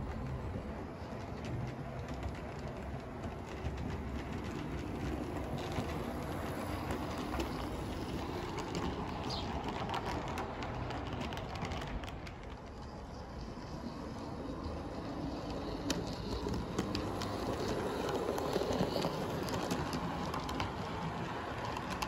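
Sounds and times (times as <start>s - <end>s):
model train motor and wheel rumble: 0.0s - 22.0s
wheels clicking over rail joints: 0.0s - 22.0s.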